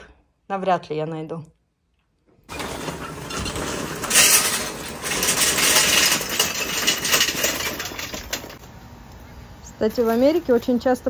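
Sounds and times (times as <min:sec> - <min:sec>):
charcoal clattering into metal: 0:02.5 - 0:08.6.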